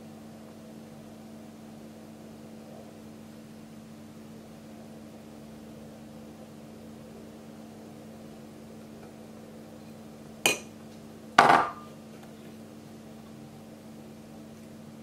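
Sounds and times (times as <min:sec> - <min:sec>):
dishes clattering: 0:11.4 - 0:11.9.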